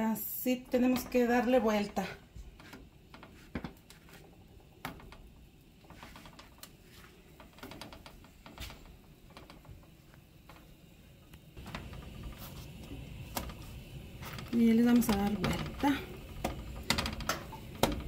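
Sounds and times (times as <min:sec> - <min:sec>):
fingers tapping dough on griddle: 0:14.9 - 0:18.0.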